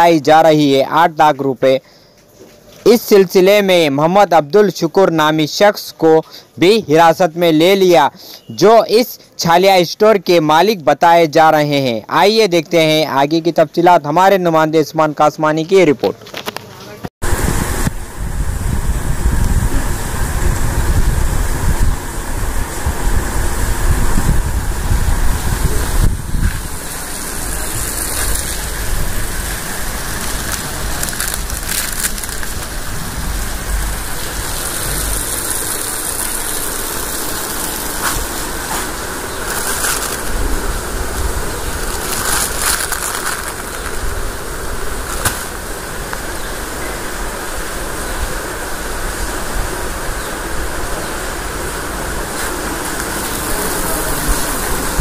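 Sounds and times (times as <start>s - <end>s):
rushing noise with rumble: 17.2s - 55.0s.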